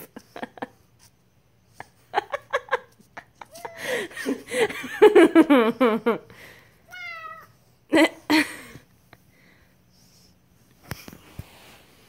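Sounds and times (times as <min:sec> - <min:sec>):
person laughing: 0:01.9 - 0:06.3, 0:07.9 - 0:08.8
cat meowing: 0:06.9 - 0:07.6.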